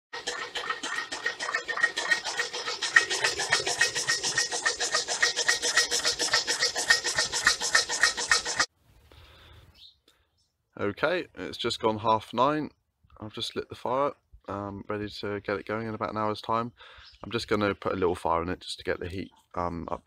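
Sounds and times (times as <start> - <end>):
pistons scraping and squeaking: 0.2 - 8.7.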